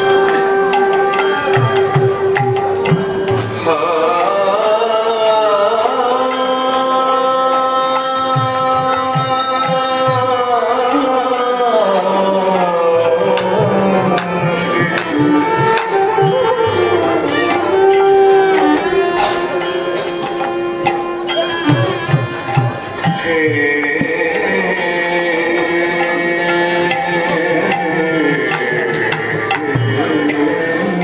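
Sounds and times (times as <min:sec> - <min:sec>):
bamboo flute: 0:00.0 - 0:03.9, 0:13.0 - 0:23.6
hand drum strokes: 0:00.0 - 0:04.3, 0:12.6 - 0:31.0
man singing: 0:00.0 - 0:31.0
violin: 0:00.0 - 0:31.0.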